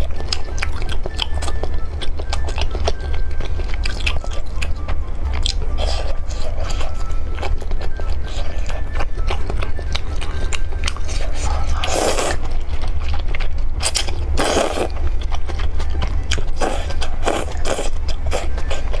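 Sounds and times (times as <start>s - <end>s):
steady low hum: 0.0s - 19.0s
wet chewing and mouth clicks: 0.0s - 19.0s
slurping noodles: 11.4s - 12.4s, 13.8s - 15.0s.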